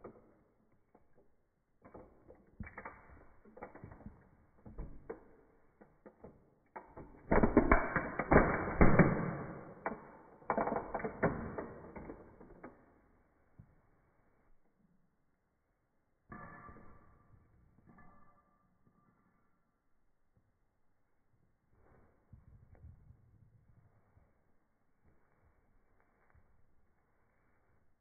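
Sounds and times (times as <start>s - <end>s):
toy car creaking and cracking: 5.8s - 12.9s.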